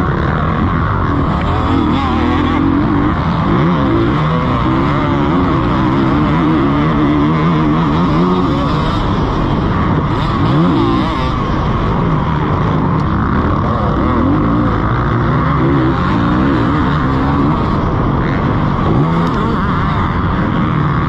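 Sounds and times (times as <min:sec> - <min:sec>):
motocross bike engine revving: 0:00.0 - 0:21.0.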